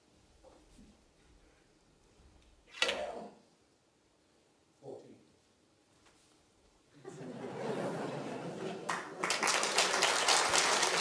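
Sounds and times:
crowd noise: 7.0s - 11.0s
audience applause: 7.2s - 11.0s.

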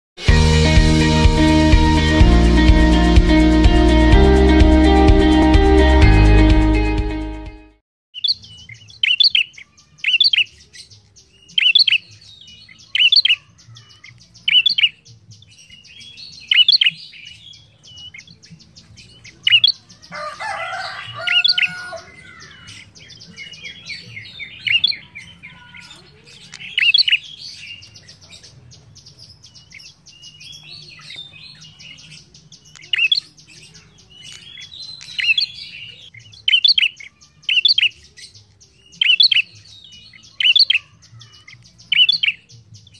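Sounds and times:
bird chattering: 21.0s - 28.6s, 30.6s - 38.1s.

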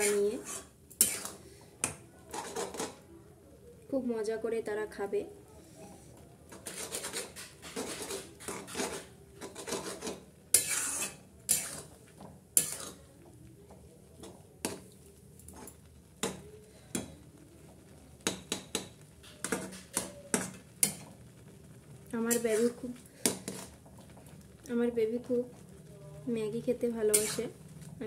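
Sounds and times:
metal spatula scraping a wok: 0.0s - 3.0s, 5.6s - 13.0s, 14.2s - 17.2s, 18.2s - 21.2s, 22.2s - 23.9s, 27.1s - 27.6s.

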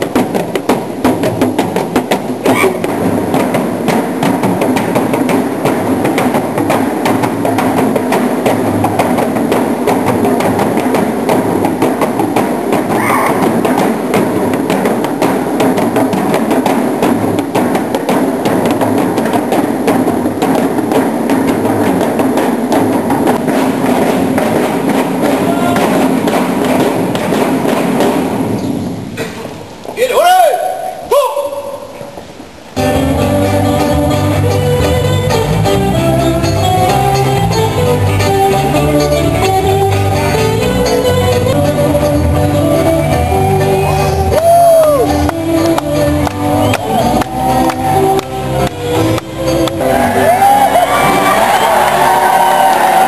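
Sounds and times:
wooden drums beaten with sticks: 0.0s - 53.0s.

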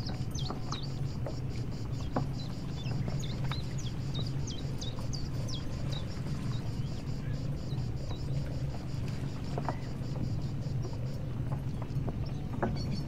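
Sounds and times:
ship engine droning: 0.0s - 13.0s.

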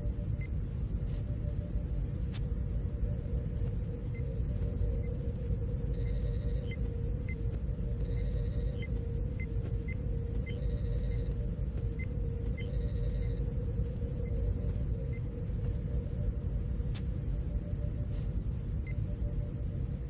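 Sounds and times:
low rumble: 0.0s - 20.0s
steady mid-pitched hum: 0.0s - 20.0s
high electronic beeps: 5.9s - 13.4s.

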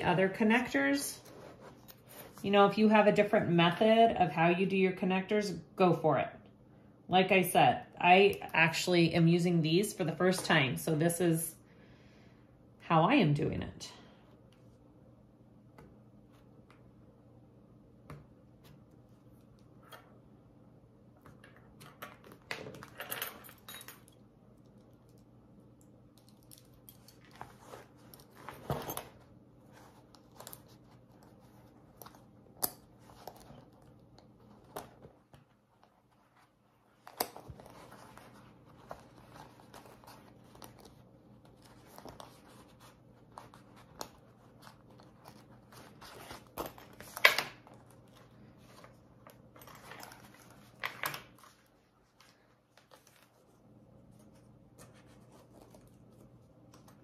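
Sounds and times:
faint steady hum: 0.0s - 57.0s
vinyl rustling and crinkling: 26.4s - 57.0s.

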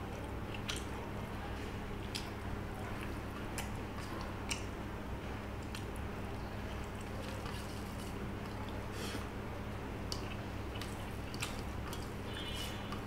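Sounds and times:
chewing: 0.2s - 0.9s, 2.0s - 4.7s, 5.6s - 5.9s, 10.1s - 13.0s.

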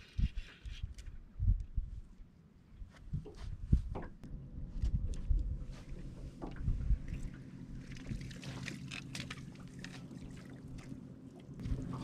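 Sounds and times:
steady low hum: 1.0s - 12.0s
knocks and thumps on boat deck: 3.1s - 4.2s, 6.3s - 7.0s
water splashing: 7.1s - 12.0s.

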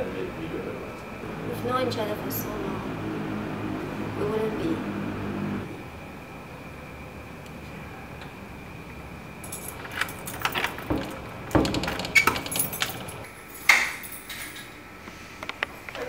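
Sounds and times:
door lock clicking and rattling: 9.5s - 13.3s.

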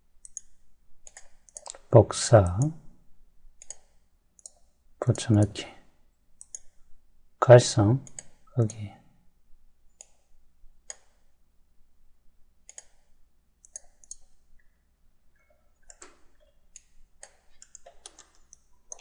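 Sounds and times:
computer mouse clicking: 0.2s - 1.9s, 3.6s - 4.6s, 6.4s - 6.8s, 10.9s - 11.2s, 12.7s - 14.4s, 15.8s - 19.0s.

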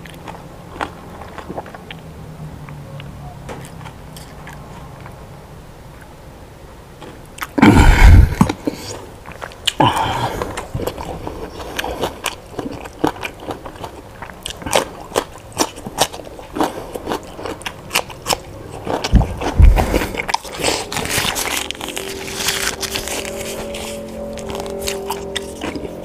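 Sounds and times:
heavy low thump: 19.1s - 20.0s.

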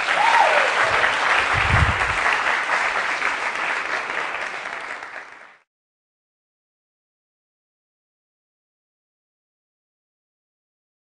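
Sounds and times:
audience applauding: 0.0s - 5.7s.

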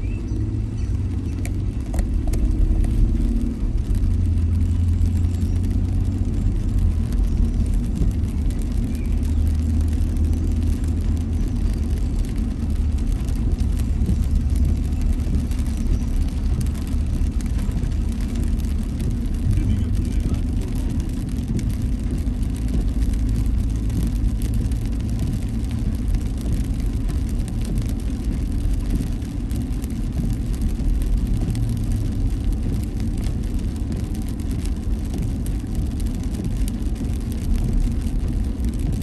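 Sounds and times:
engine and tyres on wet road: 0.0s - 39.0s
rain ticking on windscreen: 0.0s - 39.0s.

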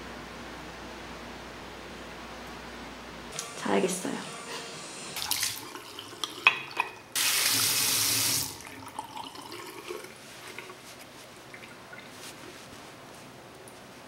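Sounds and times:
faint handling sounds: 10.0s - 14.0s.

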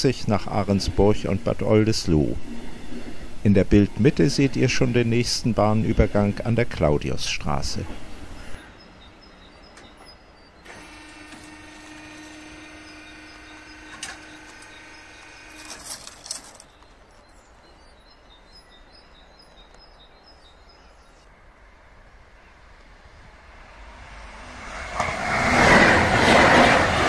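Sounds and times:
faint background noise: 0.0s - 10.9s
birds chirping: 0.1s - 24.2s.

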